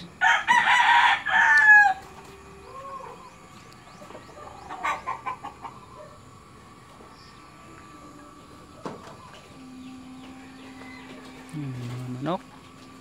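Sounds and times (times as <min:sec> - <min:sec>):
rooster crowing: 0:00.2 - 0:03.4, 0:04.2 - 0:12.1
chicken clucking: 0:02.0 - 0:12.1.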